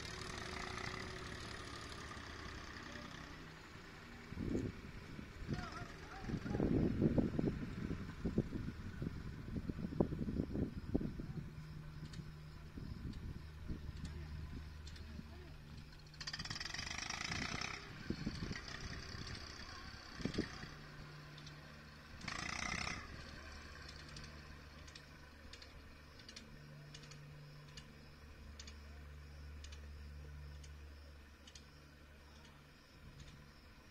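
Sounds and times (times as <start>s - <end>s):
distant tractor engine: 0.0s - 33.9s
wind buffeting microphone: 4.3s - 11.6s, 17.3s - 19.4s
faint ticks: 12.0s - 12.4s, 13.0s - 16.1s, 21.2s - 21.8s, 23.7s - 33.6s.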